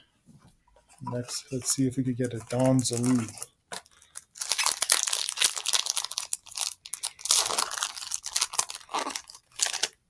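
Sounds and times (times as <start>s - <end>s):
foil wrapper crinkling and tearing: 2.2s - 10.0s.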